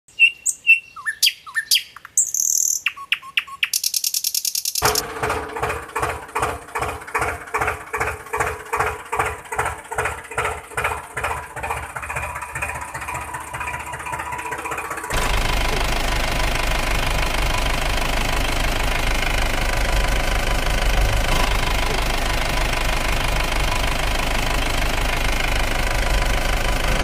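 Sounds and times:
bird-like chirps and whistles: 0:00.1 - 0:04.8
tractor engine chugging: 0:04.7 - 0:27.0.

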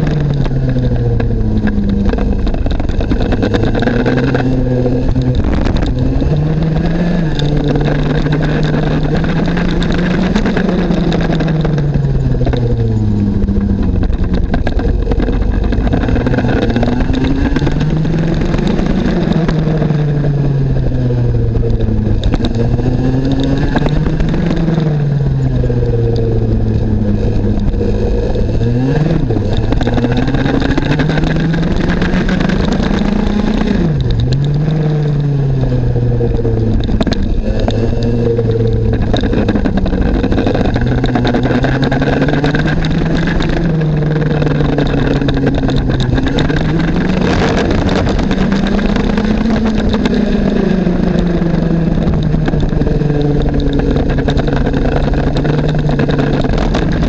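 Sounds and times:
kart engine at racing speed: 0:00.0 - 0:57.0.

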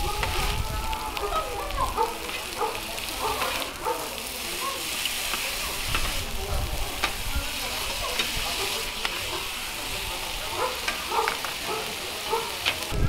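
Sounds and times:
food sizzling on griddle: 0:00.0 - 0:13.0
metal spatulas scraping griddle: 0:04.9 - 0:06.3, 0:07.8 - 0:09.8.

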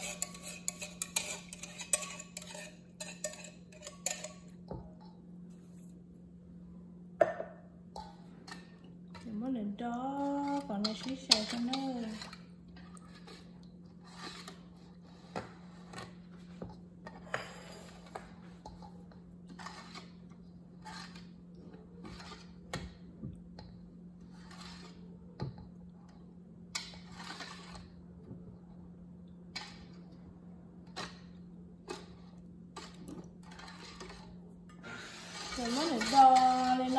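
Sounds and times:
whisk scraping a metal bowl: 0:00.0 - 0:04.5, 0:10.2 - 0:16.2, 0:19.5 - 0:20.2, 0:20.8 - 0:21.4, 0:22.0 - 0:22.7, 0:24.3 - 0:25.2, 0:26.8 - 0:27.9, 0:31.9 - 0:36.9
steady low hum: 0:00.0 - 0:36.9.

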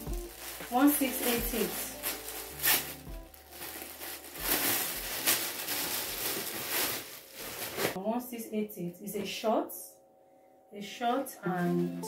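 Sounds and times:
background music: 0:00.0 - 0:07.3, 0:10.8 - 0:12.0
plastic bag crinkling: 0:00.0 - 0:08.0.

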